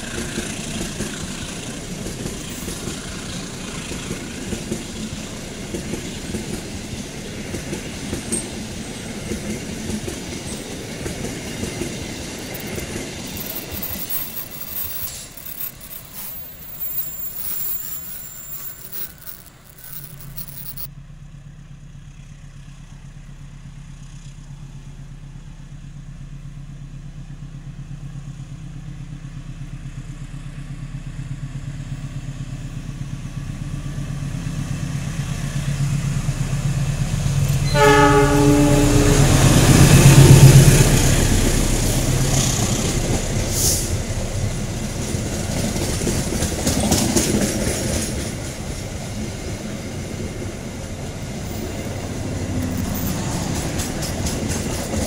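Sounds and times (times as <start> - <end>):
diesel locomotive engine drone: 0.0 - 13.8, 20.9 - 55.0
train rumbling along rails: 0.0 - 19.2, 33.2 - 55.0
train horn: 37.6 - 40.4.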